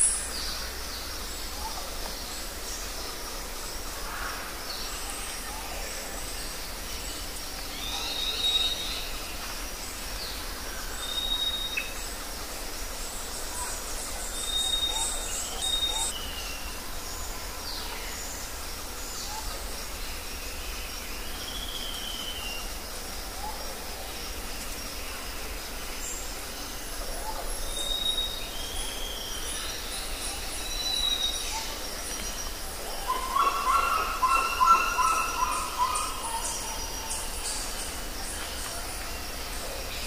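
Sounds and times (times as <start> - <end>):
steady background hiss: 0.0 - 40.0
birds whistling and calling: 14.4 - 16.6, 33.0 - 37.8.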